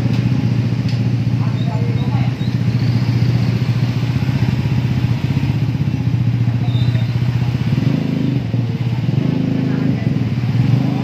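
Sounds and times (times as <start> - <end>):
small engine pulsing drone: 0.0 - 11.0.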